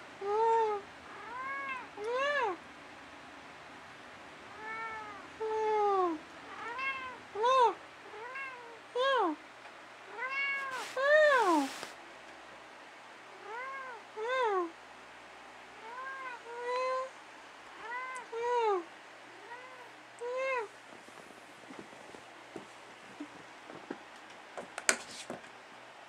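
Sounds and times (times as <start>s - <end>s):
cat meowing: 4.6s - 5.2s, 8.1s - 8.8s, 10.1s - 11.9s, 19.4s - 20.7s.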